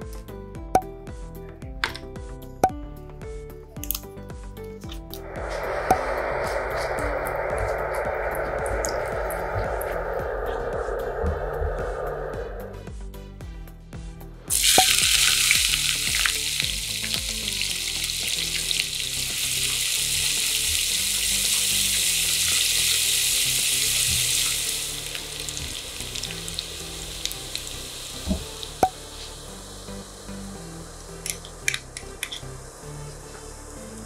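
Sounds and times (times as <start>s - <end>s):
onions sizzling in hot oil: 14.5s - 34.0s.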